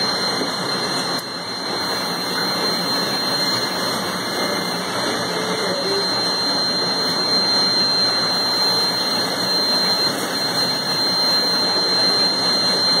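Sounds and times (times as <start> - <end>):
conveyor machinery rushing: 0.0 - 13.0
high-pitched machine whine: 0.0 - 13.0.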